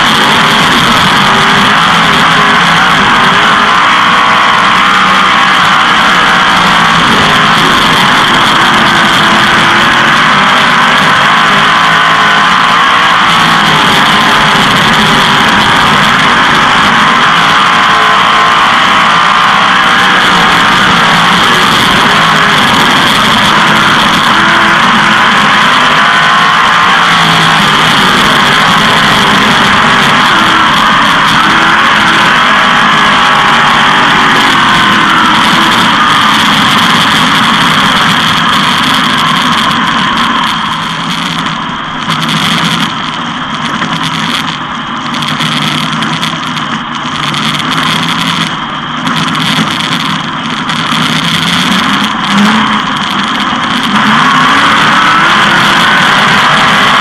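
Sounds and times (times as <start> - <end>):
racing engine roaring: 0.0 - 57.0.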